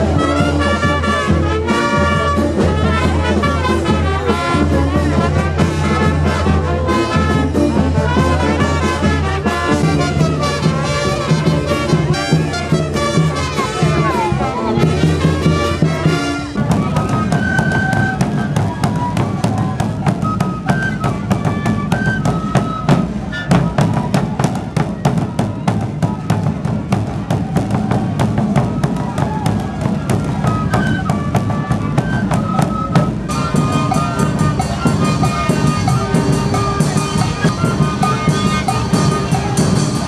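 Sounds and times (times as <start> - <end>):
brass band music: 0.0 - 17.1, 33.3 - 40.0
bass drums beaten fast: 23.7 - 31.3
high melody of held notes: 32.6 - 40.0.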